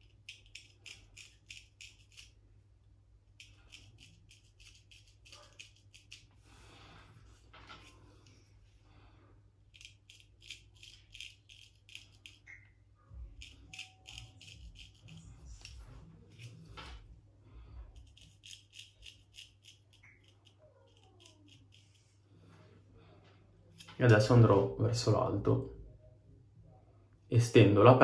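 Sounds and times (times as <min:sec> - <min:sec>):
razor scraping stubble: 0:03.3 - 0:06.4, 0:13.3 - 0:17.0.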